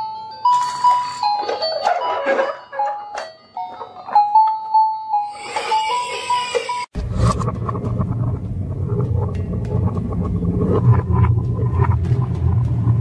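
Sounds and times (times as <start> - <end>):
toy beeping tune: 0.8 - 6.9
noisy toy sound effects: 5.3 - 6.9.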